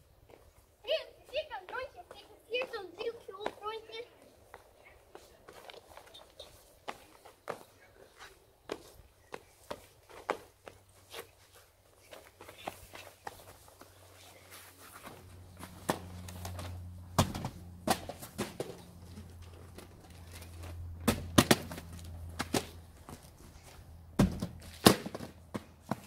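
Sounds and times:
sneakers on paving stones: 0.2 - 26.0
packages thudding into cardboard box: 17.2 - 18.8.

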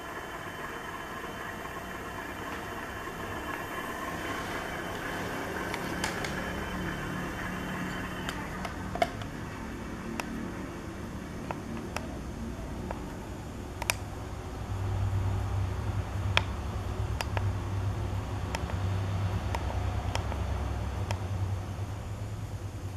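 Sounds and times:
low steady hum: 0.0 - 22.9.

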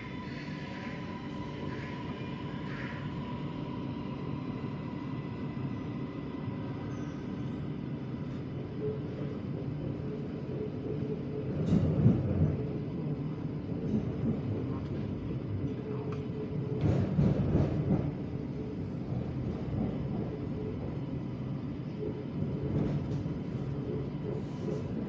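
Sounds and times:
train cabin rumble: 6.6 - 25.0.

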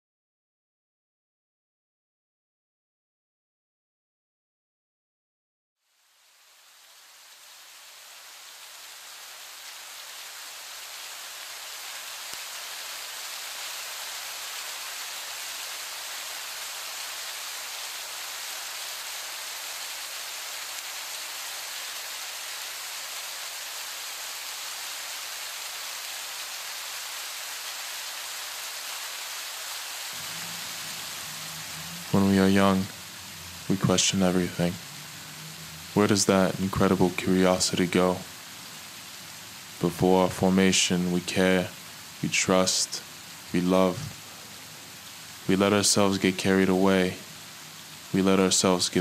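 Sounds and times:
rain-like hiss: 5.8 - 49.0
low hum: 30.2 - 39.9.

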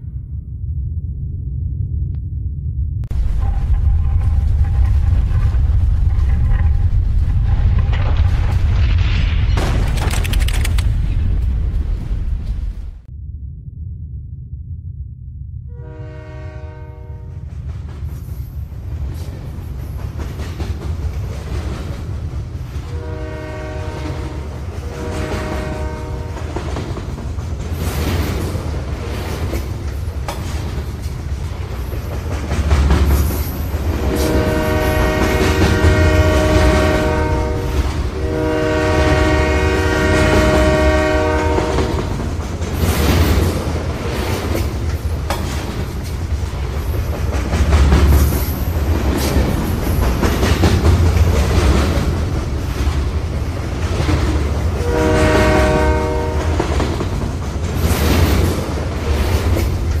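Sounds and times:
running train rumble: 0.0 - 13.1, 15.6 - 60.0
train horn blasts: 15.7 - 17.5, 22.9 - 26.7, 34.0 - 42.1, 54.8 - 56.8.

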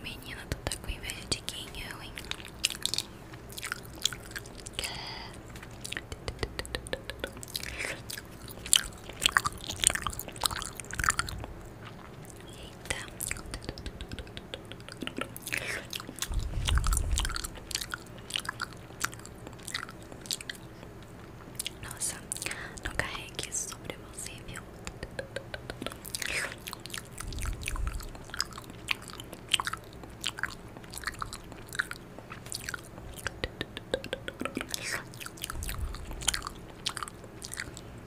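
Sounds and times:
mock chewing and biting: 2.2 - 4.8, 5.4 - 21.8, 24.9 - 37.9
wet mouth clicks and smacks: 2.2 - 23.1, 24.5 - 37.9
low rumble: 16.1 - 18.0, 27.2 - 28.5, 35.5 - 36.4.

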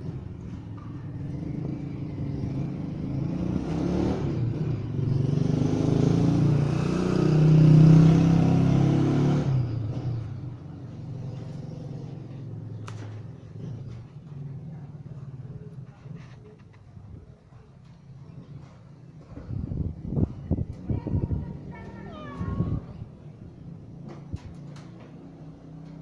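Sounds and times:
vehicle engine passing by: 0.0 - 16.7.

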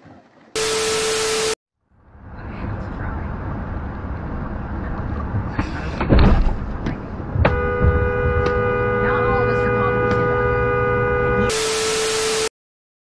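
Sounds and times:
road noise inside car: 1.9 - 12.4
car horn held: 7.5 - 11.7.

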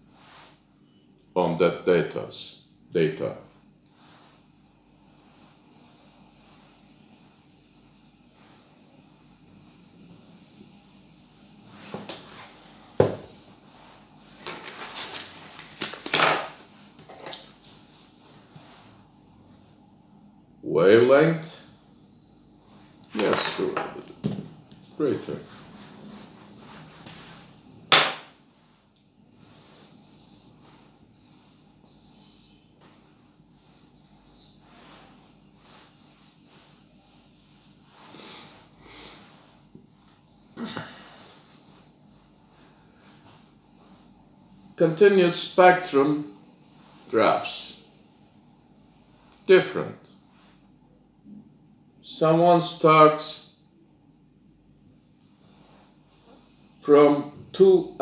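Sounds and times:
marker rubbing on whiteboard: 29.4 - 40.1.

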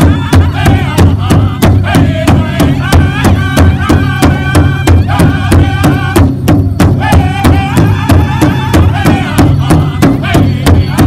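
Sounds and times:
large drum beaten with sticks: 0.0 - 11.0
men singing high in unison: 0.0 - 11.0.

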